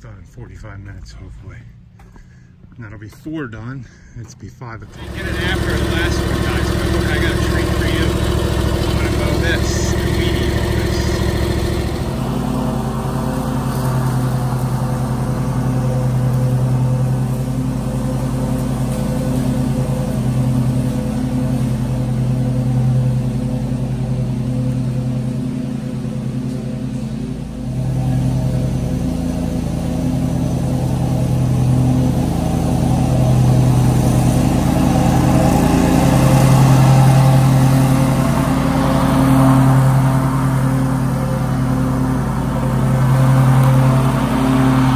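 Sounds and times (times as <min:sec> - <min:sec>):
lawn mower engine running: 0:04.8 - 0:44.9.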